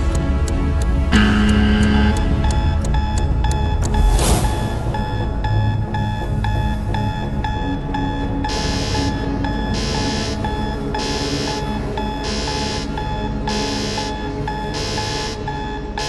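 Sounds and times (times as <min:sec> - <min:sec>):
ticking: 0:00.0 - 0:04.4
steady tone: 0:01.1 - 0:16.0.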